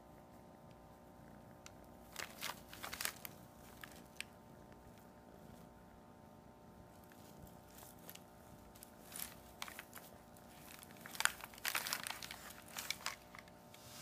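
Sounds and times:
packing paper crinkling: 2.1s - 4.3s, 7.2s - 13.8s.

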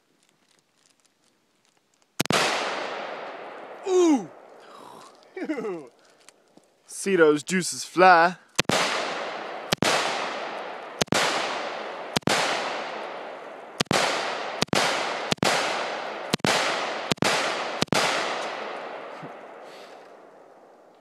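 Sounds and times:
gunshots with long echo: 2.2s - 4.6s, 8.5s - 20.9s.

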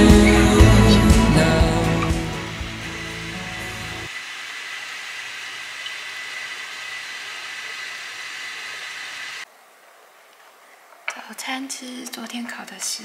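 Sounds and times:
thin high whine: 0.0s - 9.4s.

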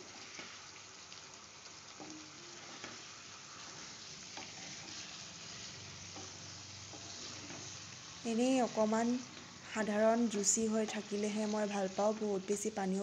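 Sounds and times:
curry sizzling in a pan: 0.0s - 13.0s
spatula stirring: 1.9s - 8.2s.

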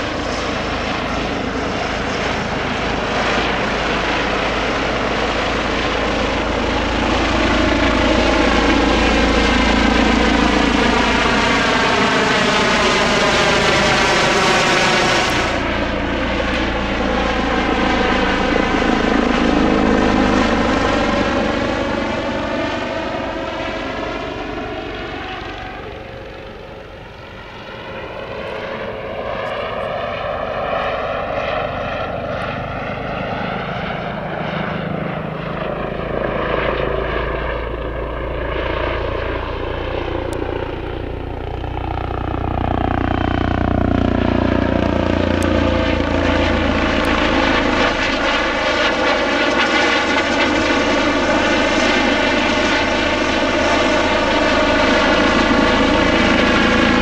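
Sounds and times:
helicopters flying past: 0.0s - 57.0s.

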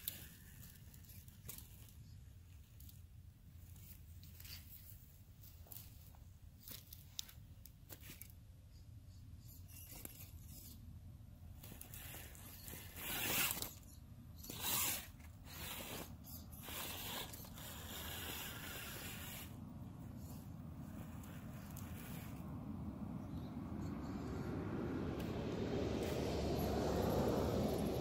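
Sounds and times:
toy truck motor whirring: 0.0s - 2.1s, 9.2s - 10.9s, 11.5s - 22.5s.

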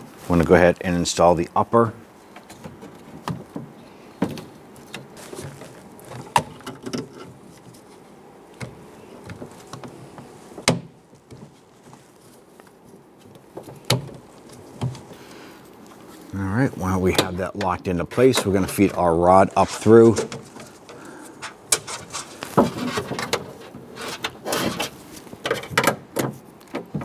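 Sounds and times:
clicks and scrapes inside car door: 19.6s - 27.0s.

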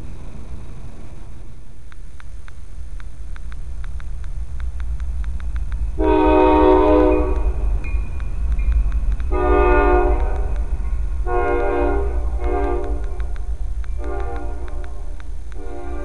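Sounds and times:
low rumble of passing train: 0.0s - 1.8s, 2.7s - 16.0s
locomotive air horn blasts: 6.0s - 7.4s, 9.3s - 10.5s, 11.2s - 13.1s, 14.0s - 14.9s, 15.6s - 16.0s.

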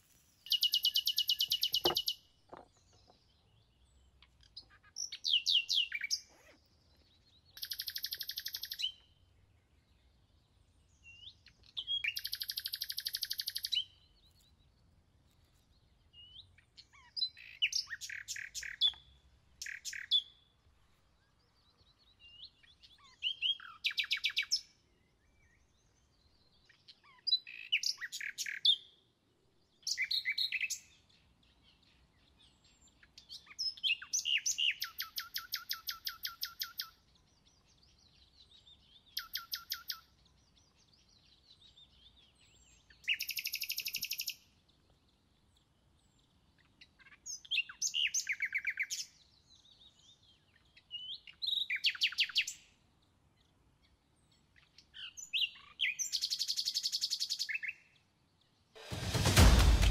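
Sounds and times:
songbirds trilling: 0.0s - 20.4s.

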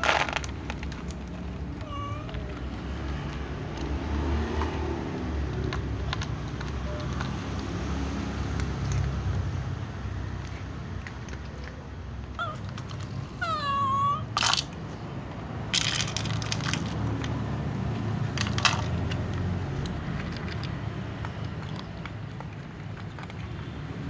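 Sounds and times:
cats crunching dry kibble: 0.0s - 24.0s
cat meowing: 1.7s - 2.8s, 12.4s - 14.6s.

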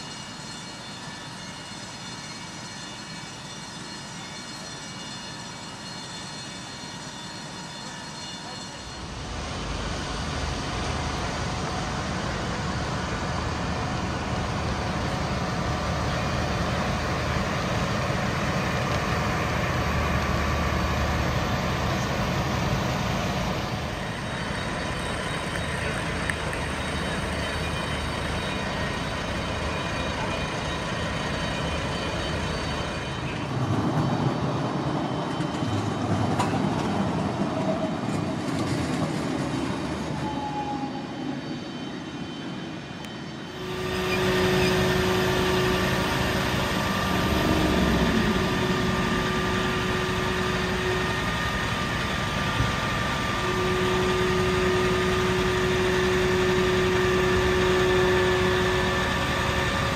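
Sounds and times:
fire engine engines droning: 0.0s - 59.9s
steady pitched tones: 43.5s - 59.5s.

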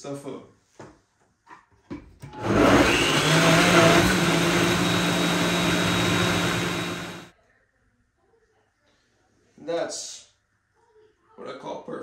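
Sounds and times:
blender motor running: 2.3s - 7.3s.

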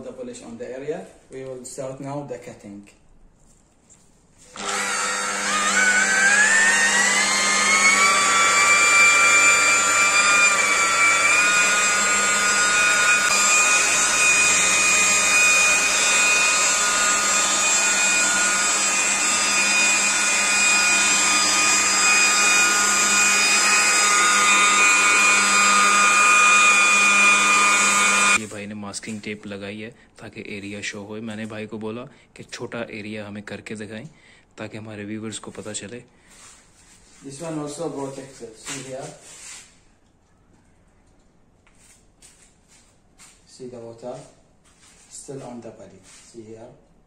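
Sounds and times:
rotary polisher motor whine: 4.4s - 28.4s.

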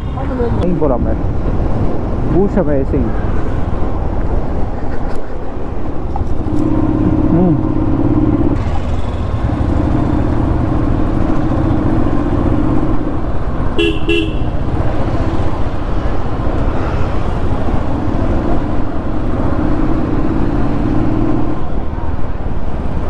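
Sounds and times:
motorcycle engine running: 6.1s - 13.0s.

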